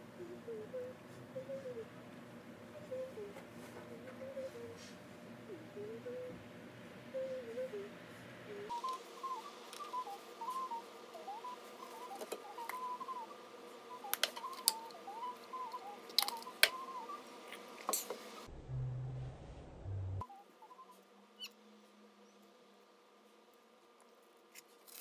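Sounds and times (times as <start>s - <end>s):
steady hum: 0.0s - 17.5s, 18.2s - 20.2s
warbling whistle-like melody: 8.7s - 13.3s.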